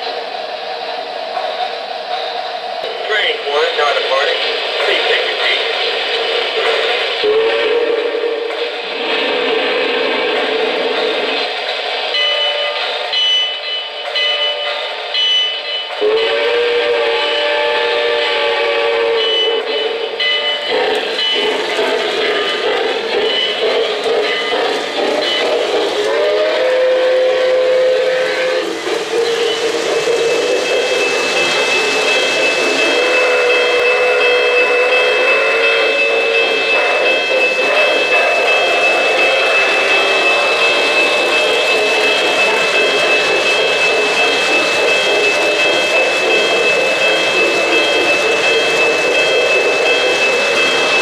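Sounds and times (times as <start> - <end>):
model trains whirring: 0.0 - 51.0
steam whistle: 7.2 - 10.8, 16.0 - 21.5, 25.2 - 47.0.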